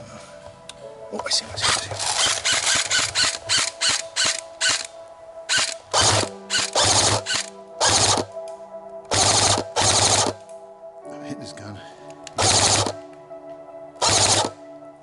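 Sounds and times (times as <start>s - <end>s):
airsoft rifle full-auto bursts: 1.7s - 4.9s, 5.5s - 8.3s, 9.1s - 10.4s, 12.4s - 13.0s, 14.0s - 14.6s.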